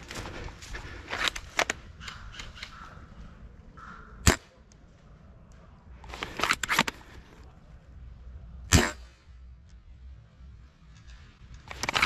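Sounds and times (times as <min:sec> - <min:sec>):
airsoft rifle shot crack: 0:08.7 - 0:09.1.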